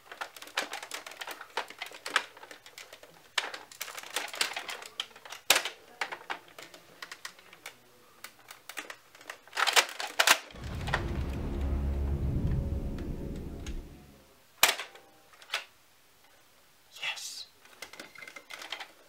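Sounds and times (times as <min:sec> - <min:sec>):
plastic toy blaster clicks: 0:08.5 - 0:10.5.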